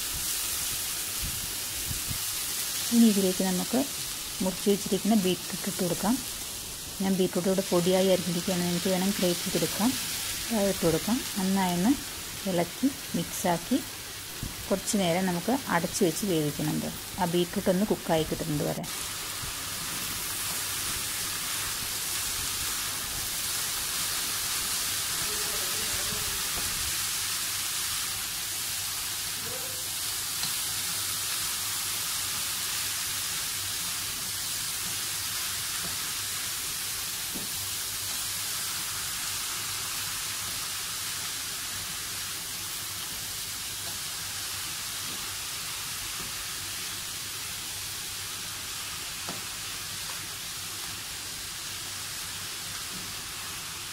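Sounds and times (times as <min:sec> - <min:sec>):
vegetables sizzling in pan: 0:00.0 - 0:53.9.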